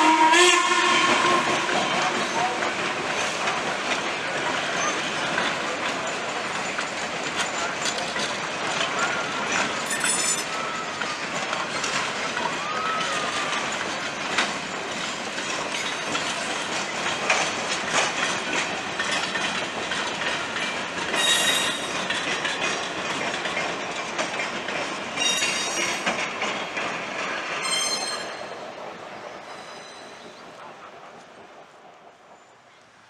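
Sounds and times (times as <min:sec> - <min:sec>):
train wheels on rails: 0:00.0 - 0:33.0
high-pitched wheel squeals: 0:21.2 - 0:21.9.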